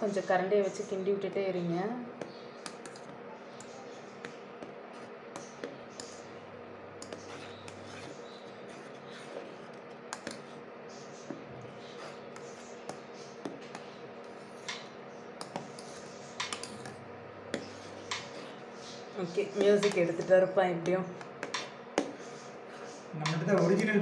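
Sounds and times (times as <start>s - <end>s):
faint steady hum: 0.0s - 24.0s
metal spoon scraping saucepan: 7.0s - 10.6s.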